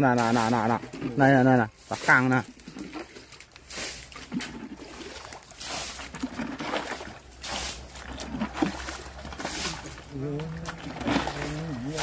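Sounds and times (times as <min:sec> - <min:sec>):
stream water splashing: 0:00.0 - 0:12.0.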